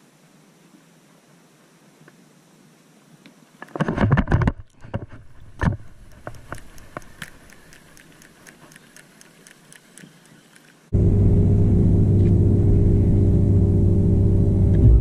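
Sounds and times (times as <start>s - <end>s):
faint clicks: 4.5s - 10.9s.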